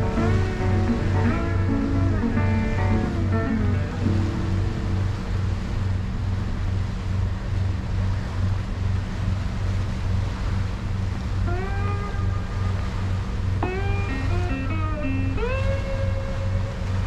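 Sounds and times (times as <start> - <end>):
guitar phrase: 0.0 - 5.0, 13.6 - 16.6
low bass pulse: 0.0 - 17.0.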